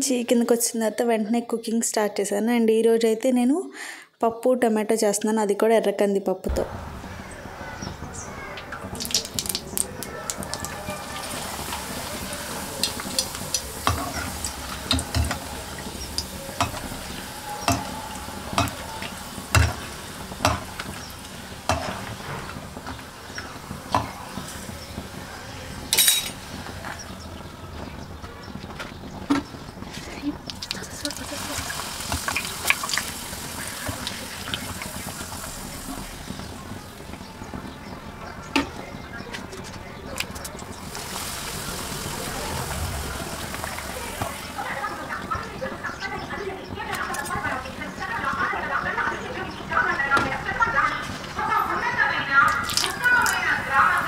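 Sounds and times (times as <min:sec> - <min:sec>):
oil sizzling in a pan: 0:07.1 - 0:27.5, 0:30.4 - 0:38.1, 0:40.6 - 0:46.2, 0:51.4 - 0:54.0
metal utensils tapping a pan: 0:09.0 - 0:24.6, 0:25.9 - 0:26.5.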